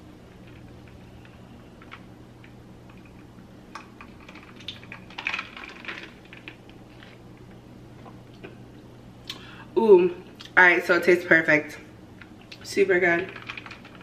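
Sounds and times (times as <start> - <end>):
faint steady hum: 0.0 - 14.0
ice cubes clinking: 4.0 - 6.6.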